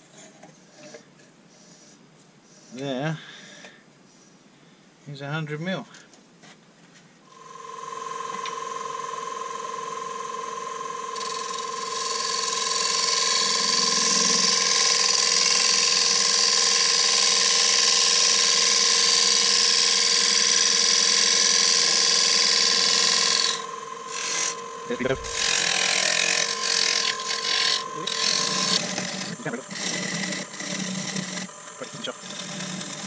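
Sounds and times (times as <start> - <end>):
lathe motor whine: 7.3 - 33.0
gouge cutting wood with hiss: 11.2 - 33.0.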